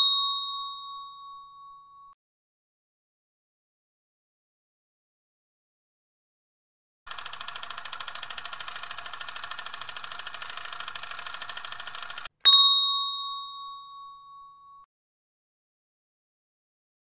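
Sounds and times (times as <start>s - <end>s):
bright bell ding: 0.0s - 2.1s, 12.4s - 14.9s
rapid clock ticking: 7.1s - 12.3s.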